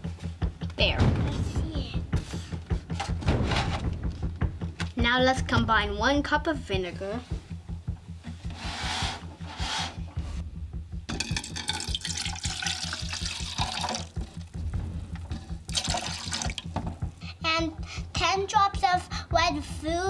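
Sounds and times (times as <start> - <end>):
liquid pouring into cup: 11.2 - 14.4, 15.7 - 16.8.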